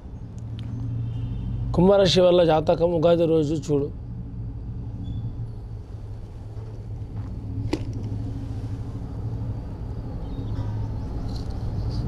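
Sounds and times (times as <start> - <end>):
low background rumble and hum: 0.0 - 12.0.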